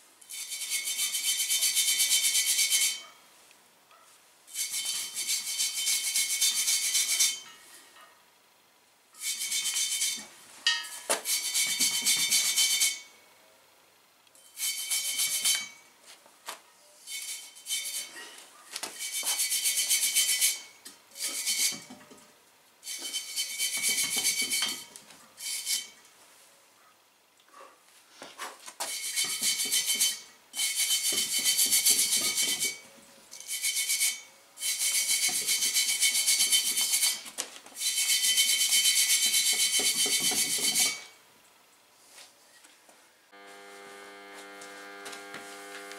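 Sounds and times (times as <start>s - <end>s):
hand tool scraping metal: 0.2s - 3.1s, 4.5s - 8.1s, 9.2s - 13.1s, 14.4s - 15.9s, 17.0s - 22.2s, 22.8s - 26.0s, 28.4s - 41.2s.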